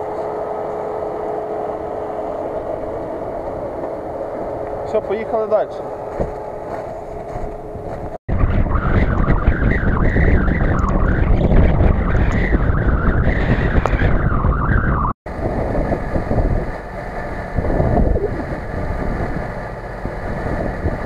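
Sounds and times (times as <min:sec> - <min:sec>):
off-road vehicle engine running: 0:00.0 - 0:21.0
steady low rumble: 0:00.0 - 0:21.0
wind on microphone: 0:07.2 - 0:21.0.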